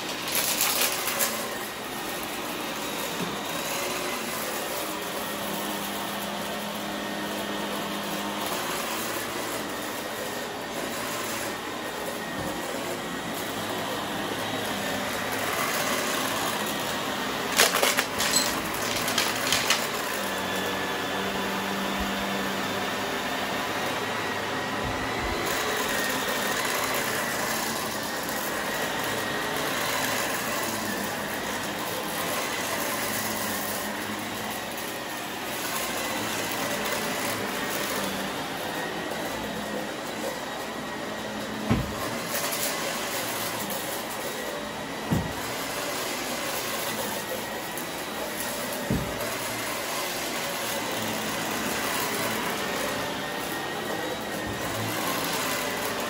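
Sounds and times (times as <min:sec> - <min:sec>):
vacuum cleaner running: 0:00.0 - 0:56.0
confetti crackling in vacuum: 0:17.5 - 0:20.3.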